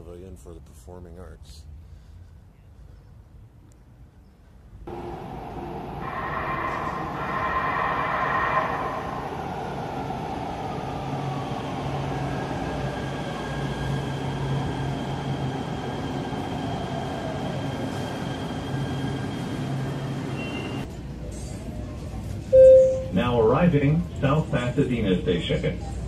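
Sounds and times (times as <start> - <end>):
train rumbling: 4.9 - 26.0
thin high tone: 22.5 - 23.2.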